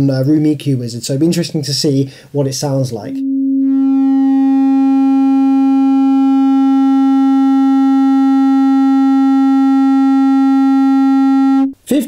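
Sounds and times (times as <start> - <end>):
loud sine test tone: 3.0 - 11.8.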